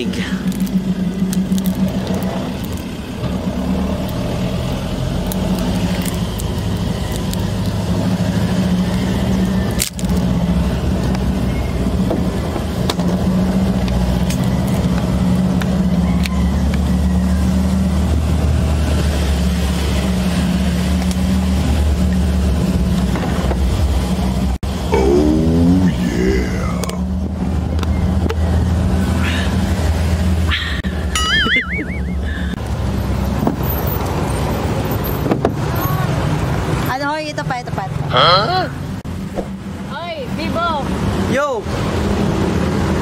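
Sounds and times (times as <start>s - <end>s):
vehicle engine humming: 0.0s - 43.0s.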